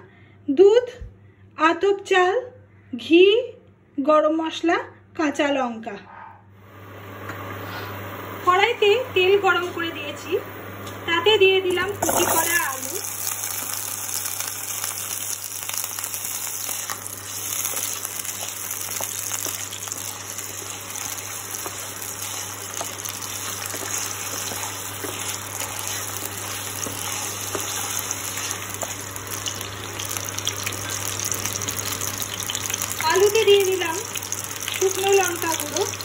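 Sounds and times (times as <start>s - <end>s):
potatoes sizzling in hot oil: 11.7s - 36.0s
oil crackling and popping: 12.0s - 36.0s.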